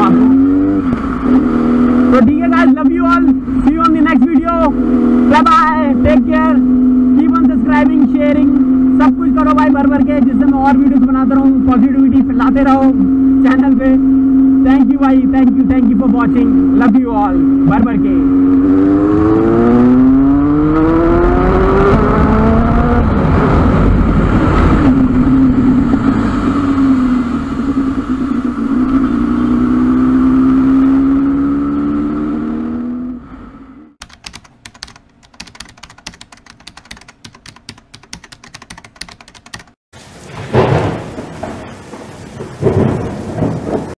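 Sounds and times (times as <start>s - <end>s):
motorcycle engine accelerating: 0.0s - 34.1s
rapid crackling: 34.0s - 39.8s.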